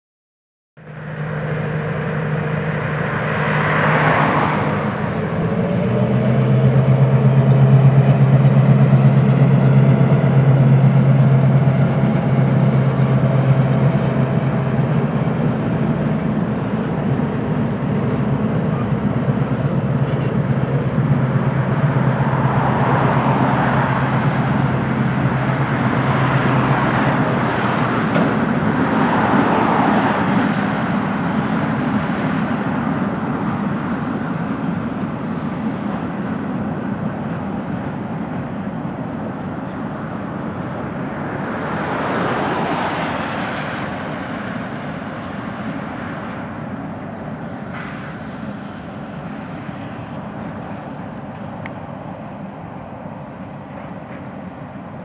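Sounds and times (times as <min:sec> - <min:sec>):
diesel locomotive engine drone: 0:00.8 - 0:55.0
freight cars rumbling on bridge: 0:00.8 - 0:55.0
car hissing past on wet road: 0:01.3 - 0:08.3, 0:21.6 - 0:35.2, 0:41.3 - 0:51.6.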